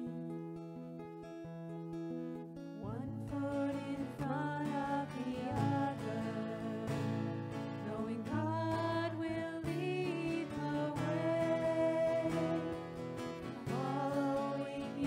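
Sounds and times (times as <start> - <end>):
acoustic guitars strummed: 0.0 - 15.0
people singing: 3.0 - 15.0.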